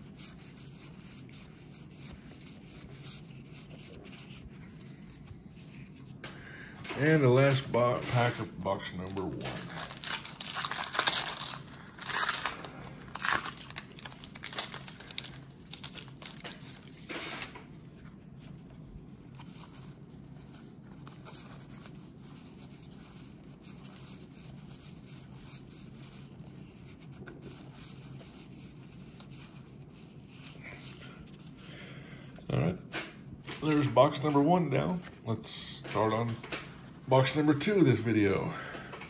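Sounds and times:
low steady hum: 0.0s - 39.0s
cards rustling: 0.1s - 18.2s, 32.5s - 39.0s
wax paper wrapper crinkling: 7.0s - 31.6s.

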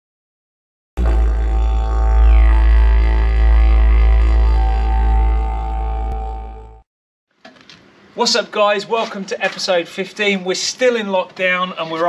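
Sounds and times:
deep drone with held tones: 1.0s - 6.9s.

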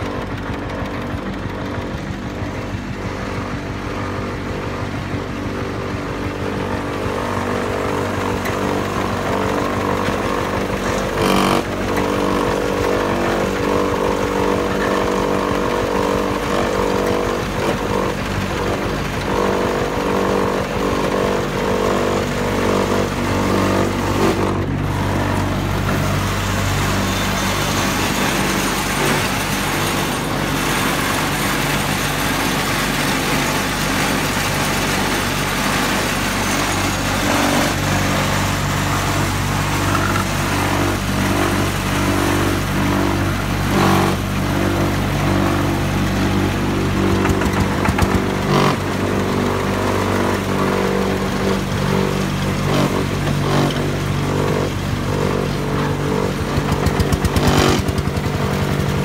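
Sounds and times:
machine motor drone: 0.0s - 59.0s.

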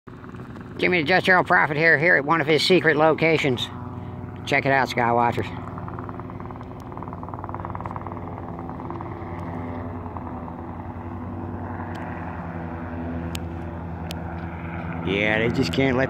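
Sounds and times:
helicopter flying overhead: 0.1s - 16.0s.

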